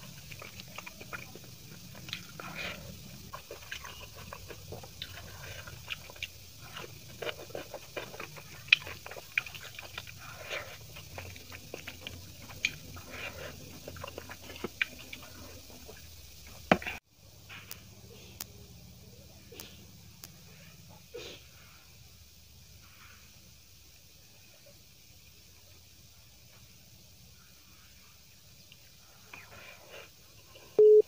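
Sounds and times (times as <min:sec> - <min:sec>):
chewing and mouth smacks: 0:00.0 - 0:17.0
rice squishing under fingers: 0:00.0 - 0:18.5.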